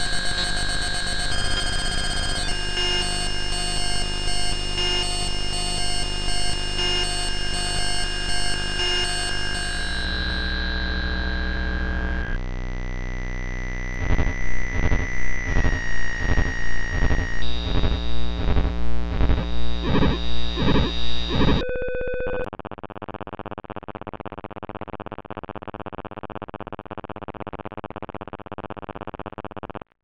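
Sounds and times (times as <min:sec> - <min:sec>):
synthesizer buzzing drone: 0:00.0 - 0:21.6.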